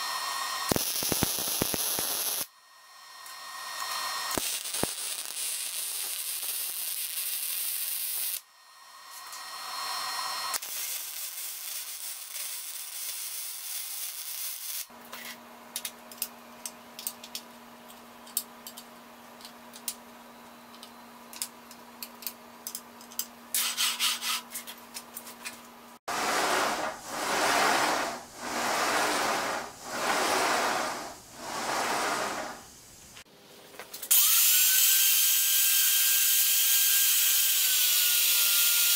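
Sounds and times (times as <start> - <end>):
welder crackling and hissing: 0.0 - 14.9, 34.1 - 38.9.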